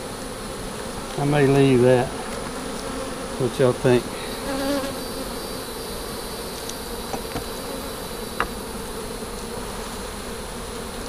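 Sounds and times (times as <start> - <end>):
honeybees buzzing: 0.0 - 11.0
hive tool clicks: 6.5 - 7.5.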